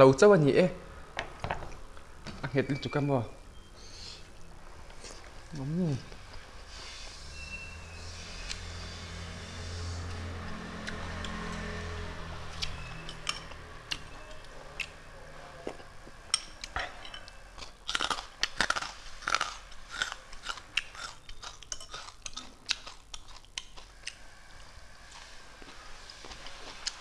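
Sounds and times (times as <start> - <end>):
person chewing: 4.1 - 6.6, 10.8 - 11.7, 12.5 - 27.0.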